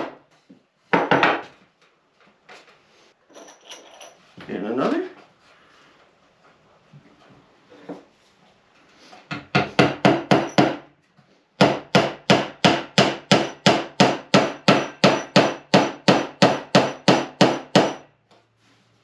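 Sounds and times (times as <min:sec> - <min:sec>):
hammer driving nails into wood: 0:09.3 - 0:10.9, 0:11.6 - 0:18.0.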